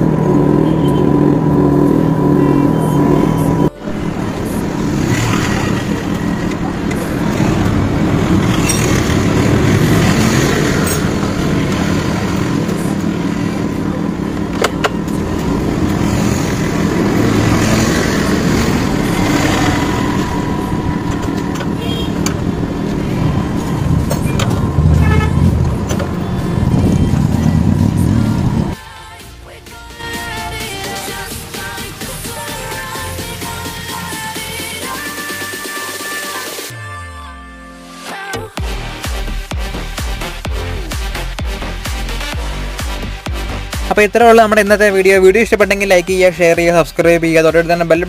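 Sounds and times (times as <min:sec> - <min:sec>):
motor vehicle noise: 0:00.0 - 0:28.9, 0:38.5 - 0:48.0.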